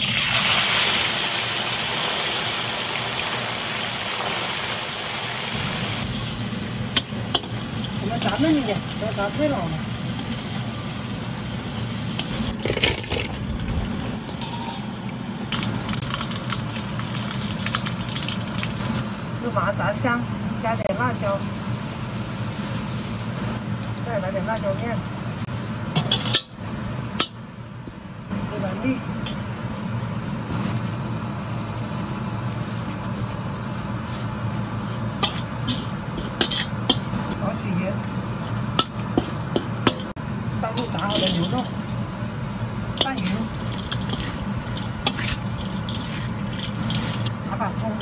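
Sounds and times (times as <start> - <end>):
hot oil sizzling in a wok: 0.0 - 48.0
metal clatter: 12.5 - 15.0, 40.8 - 41.8, 43.0 - 47.3
steady low rumble: 33.9 - 48.0.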